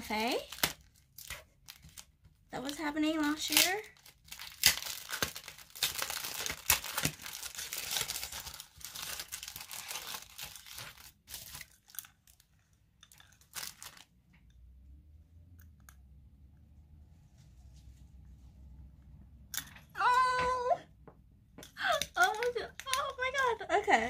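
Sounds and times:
plastic packaging crinkling: 0.0s - 14.2s.

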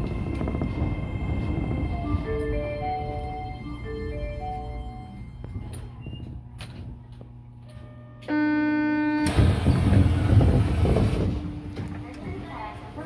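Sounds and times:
station departure melody: 0.0s - 13.0s
electronic buzzer tone: 8.2s - 9.3s.

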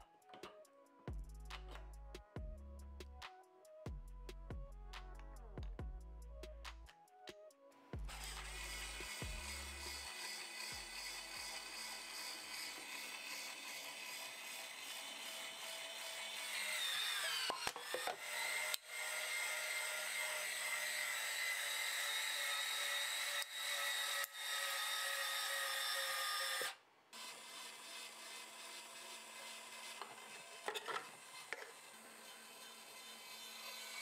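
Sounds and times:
electric motor whining: 8.0s - 34.0s.

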